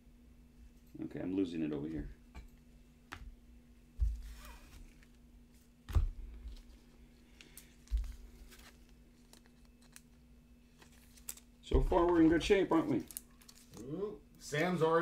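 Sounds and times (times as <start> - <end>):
light rustling of cards: 4.0 - 13.9
cards thumping on table: 5.9 - 6.7.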